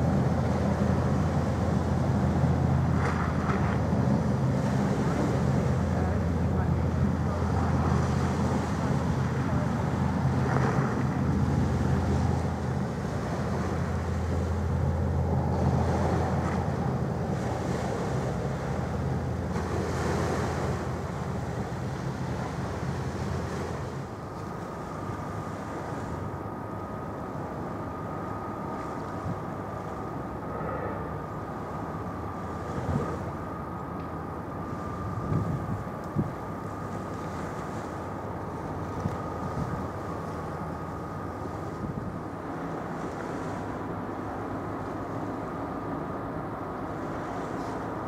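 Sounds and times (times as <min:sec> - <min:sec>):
ship diesel engines droning: 0:00.0 - 0:48.0
thin high whine: 0:11.4 - 0:48.0
wind noise on microphone: 0:34.8 - 0:36.6.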